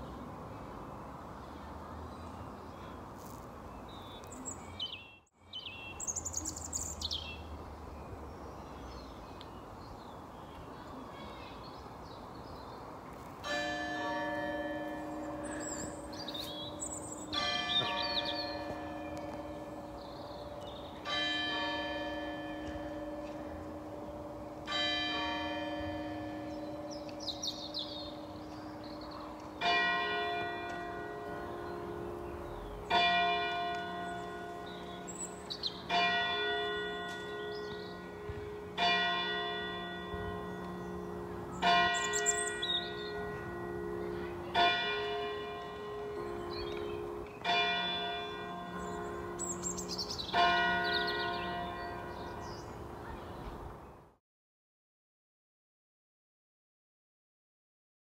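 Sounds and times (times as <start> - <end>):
low hour bell ringing: 13.4 - 52.9
birds chirping faintly: 26.0 - 54.1.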